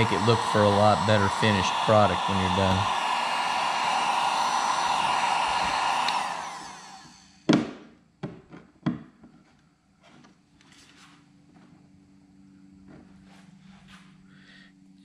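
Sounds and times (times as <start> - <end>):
heat gun blowing: 0.0 - 7.6.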